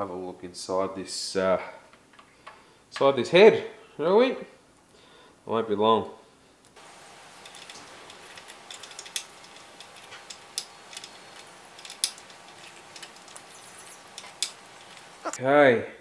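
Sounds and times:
light metallic clicks: 7.4s - 15.4s.

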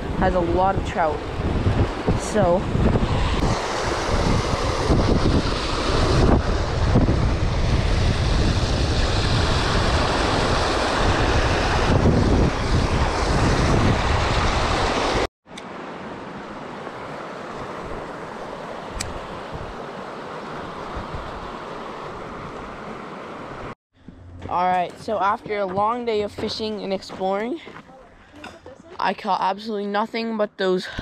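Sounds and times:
wind noise on microphone: 0.0s - 15.3s, 18.9s - 19.8s, 20.6s - 22.9s
steady flow of water: 7.9s - 23.8s.

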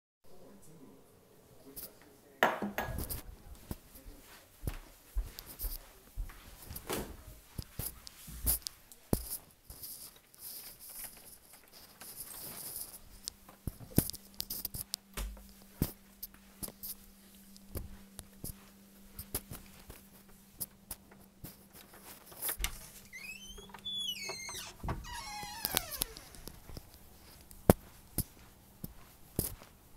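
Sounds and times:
footsteps: 2.8s - 29.9s
squeaky falling glides: 23.0s - 26.2s.

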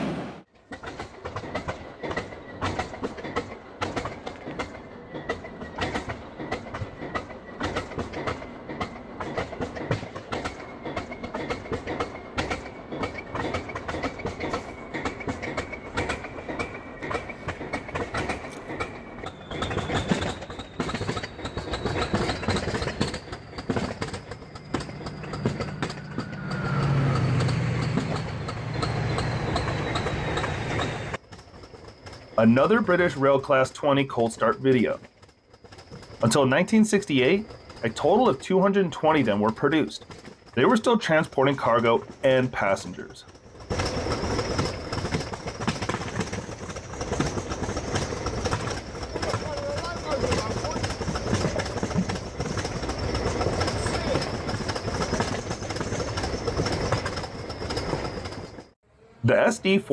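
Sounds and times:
diesel locomotive engines clattering: 0.0s - 59.9s
faint rising whistle: 19.2s - 31.2s.

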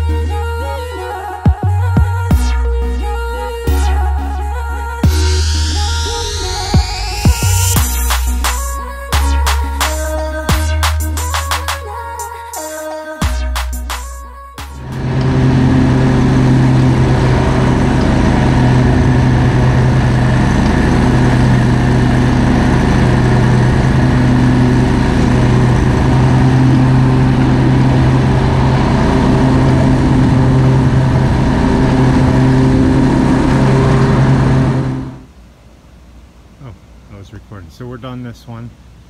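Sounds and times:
lawn mower engine running: 14.8s - 35.3s.

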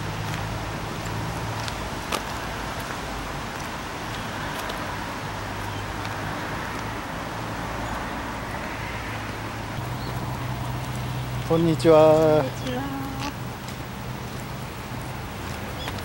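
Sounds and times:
light rain hissing: 9.7s - 16.0s.

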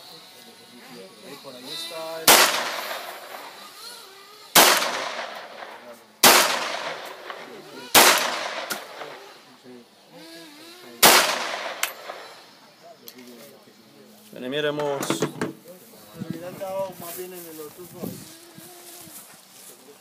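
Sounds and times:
pistol shots with echo: 2.2s - 3.5s, 4.6s - 9.2s, 11.0s - 12.3s.

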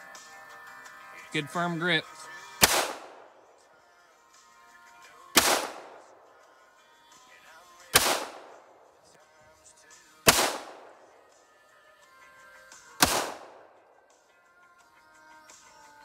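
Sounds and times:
pistol gunshots: 2.6s - 3.6s, 5.3s - 6.5s, 7.9s - 9.1s, 10.2s - 11.2s, 13.0s - 13.9s.

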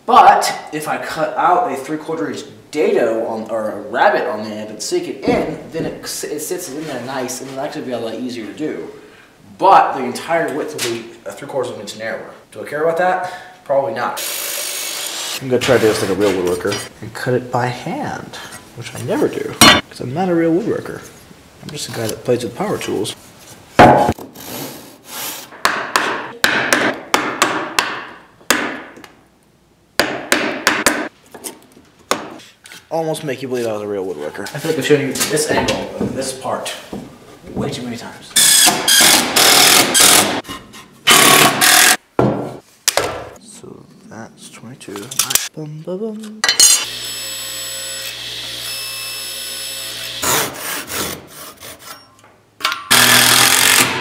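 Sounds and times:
table saw cutting wood: 14.2s - 15.4s, 46.8s - 51.8s, 52.9s - 54.0s.

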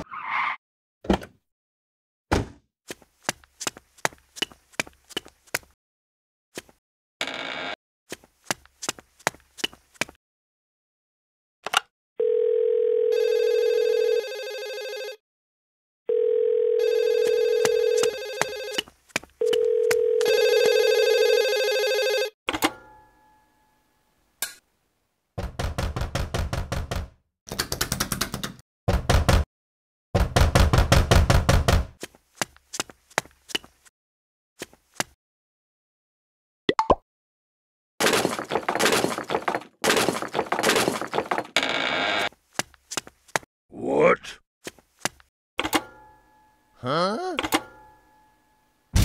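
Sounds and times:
phone ringing tone: 12.2s - 15.2s, 16.1s - 22.4s
telephone dial tone: 12.2s - 15.2s, 16.1s - 18.8s, 19.4s - 22.4s.

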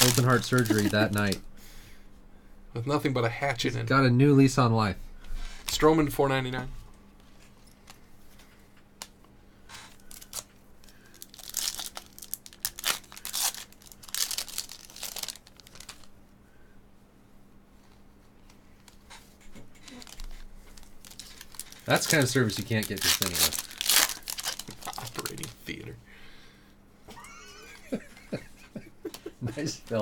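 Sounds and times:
foil wrapper crinkling and tearing: 0.0s - 1.4s, 9.8s - 16.2s, 19.8s - 25.9s.

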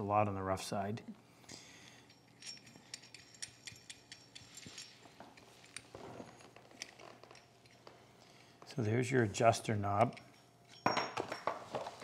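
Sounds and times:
metal plane parts clicking: 2.3s - 5.9s.

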